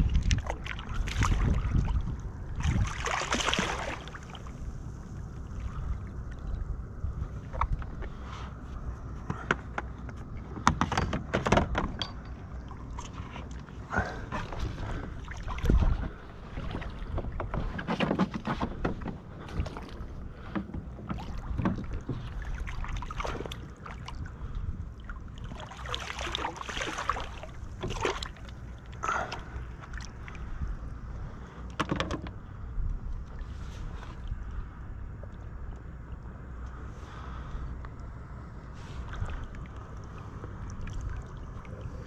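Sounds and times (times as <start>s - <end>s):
water splashing: 0.0s - 6.7s, 14.5s - 17.4s, 21.1s - 30.6s, 38.8s - 42.0s.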